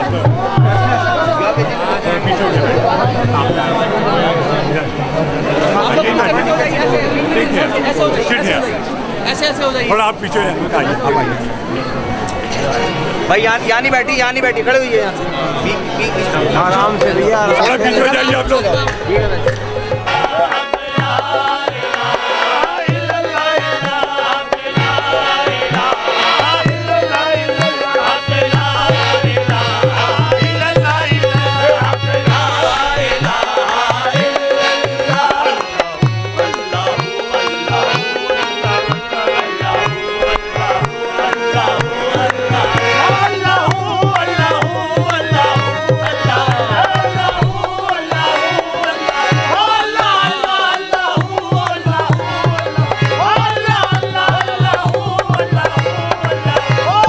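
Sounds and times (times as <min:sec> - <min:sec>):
hand drum fast beat: 0:00.0 - 0:03.7, 0:16.4 - 0:57.0
sung melody: 0:09.9 - 0:57.0.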